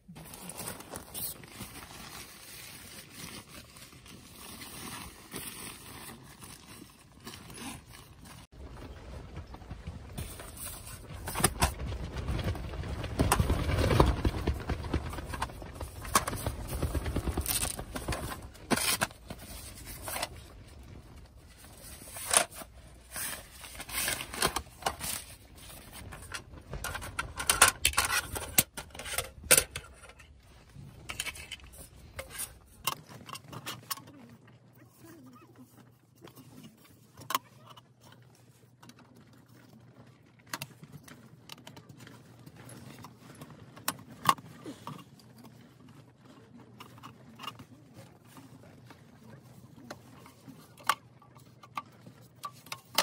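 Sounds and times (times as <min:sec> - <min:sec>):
objects scraping and knocking: 0:04.4 - 0:34.5.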